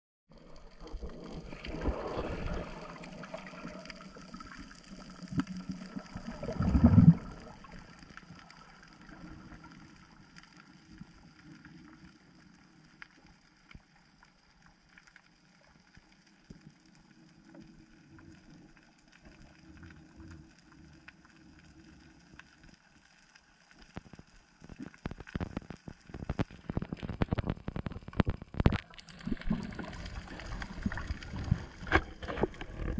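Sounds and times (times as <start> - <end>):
muffled underwater rushing water: 0.3 - 32.9
water splashing and sloshing: 0.4 - 12.2, 23.7 - 32.9.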